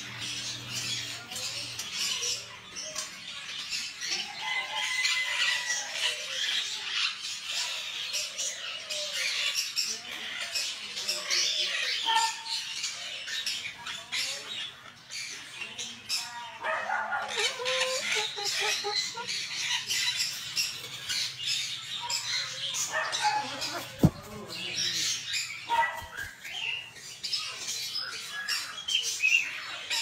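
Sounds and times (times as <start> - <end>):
parrots squawking: 16.6 - 26.2.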